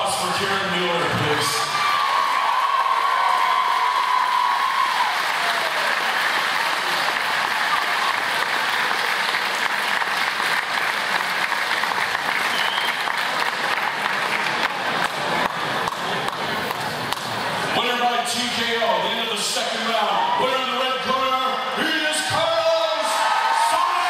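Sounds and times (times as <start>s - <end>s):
crowd applauding: 0.9s - 17.5s, 22.3s - 24.0s.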